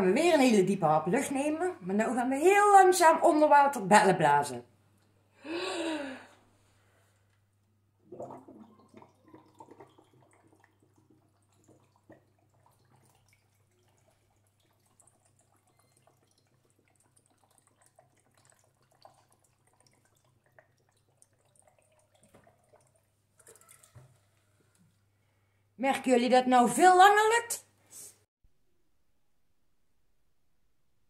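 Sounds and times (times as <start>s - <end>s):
bubbling underwater: 8.0s - 13.3s.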